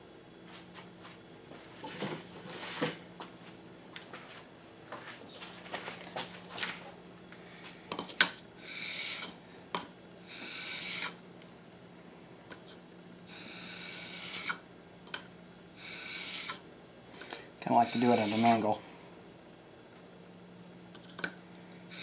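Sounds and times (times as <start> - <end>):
blade scraping on sandpaper: 8.6 - 9.4, 10.3 - 11.2, 13.3 - 14.6, 15.8 - 16.6, 17.7 - 18.7.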